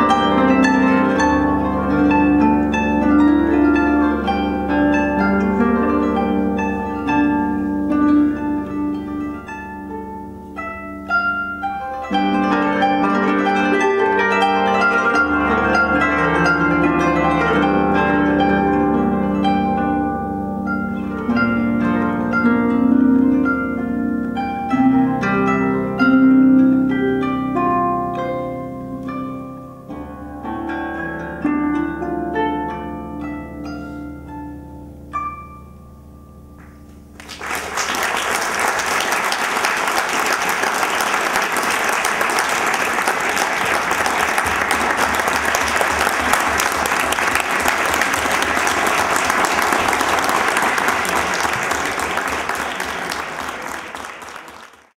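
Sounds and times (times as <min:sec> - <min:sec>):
harp plucked notes: 0:00.0 - 0:37.3
audience applauding: 0:37.2 - 0:55.0.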